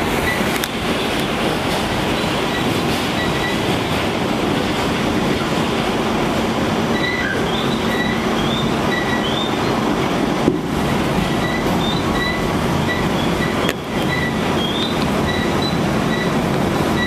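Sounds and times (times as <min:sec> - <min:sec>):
subway wheels rumbling on rail: 0:00.0 - 0:17.0
high-pitched wheel squeals: 0:06.9 - 0:09.8, 0:10.9 - 0:17.0.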